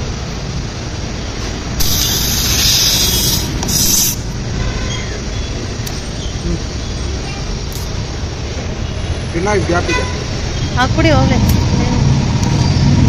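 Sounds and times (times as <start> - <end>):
low traffic rumble: 0.0 - 13.0
air hissing from a tyre: 1.7 - 5.1.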